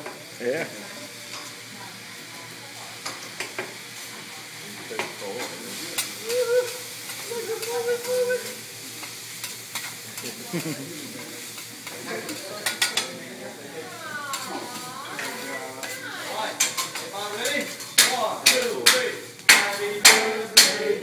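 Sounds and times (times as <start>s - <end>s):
rice sizzling on griddle: 0.0s - 21.0s
metal spatulas scraping and clacking: 11.6s - 13.2s, 14.3s - 20.9s.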